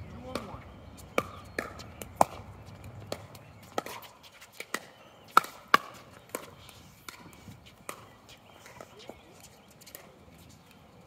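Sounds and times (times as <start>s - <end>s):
paddles hitting plastic ball: 0.2s - 9.2s.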